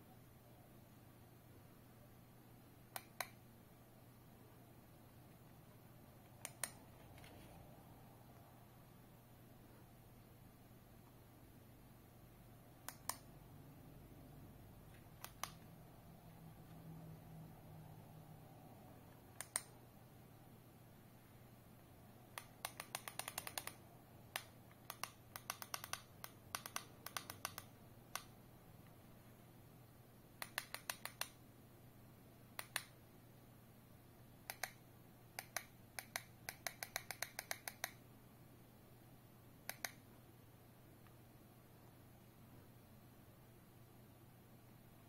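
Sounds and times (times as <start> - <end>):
faint steady hum: 0.0 - 45.0
remote control buttons clicking: 2.9 - 3.4, 6.2 - 7.4, 12.8 - 13.3, 14.9 - 15.7, 19.3 - 19.8, 22.3 - 28.3, 30.4 - 31.4, 32.6 - 33.0, 34.4 - 34.8, 35.4 - 38.0, 39.6 - 40.0.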